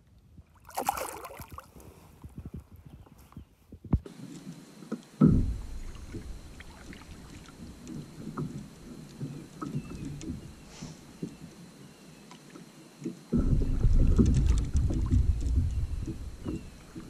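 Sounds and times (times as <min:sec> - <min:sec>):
wind rumbling on microphone: 0:00.0 - 0:04.1, 0:05.2 - 0:11.8, 0:13.3 - 0:17.0
paddle dipping and dripping in water: 0:00.5 - 0:02.4, 0:04.1 - 0:17.0
low thump: 0:05.2 - 0:10.5, 0:13.3 - 0:17.0.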